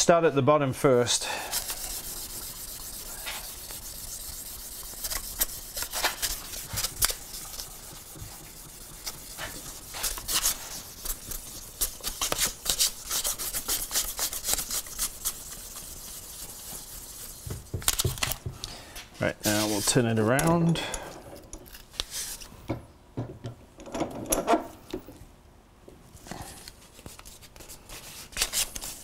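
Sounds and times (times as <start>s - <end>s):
abrasive strip rubbing metal tube: 1.2s - 17.6s.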